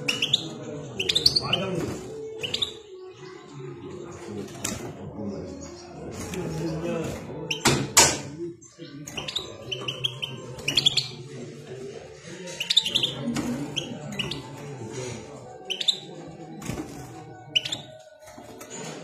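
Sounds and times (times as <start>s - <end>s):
goldfinch chirping: 0.0s - 1.6s, 9.2s - 11.2s, 12.5s - 14.5s, 15.7s - 16.0s.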